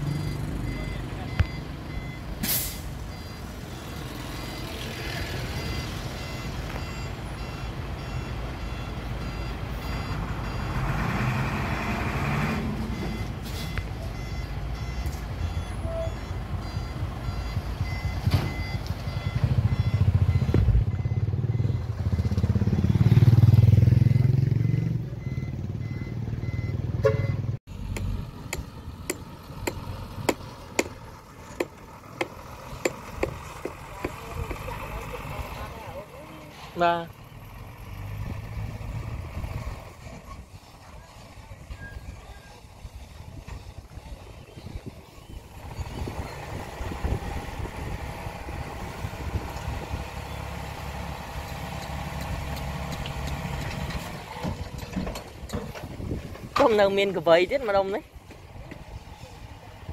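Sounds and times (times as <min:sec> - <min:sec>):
reverse alarm beeping: 0:00.0 - 0:04.8, 0:05.5 - 0:10.8, 0:12.9 - 0:22.7, 0:23.7 - 0:27.5
dump truck engine revving: 0:00.0 - 0:56.6.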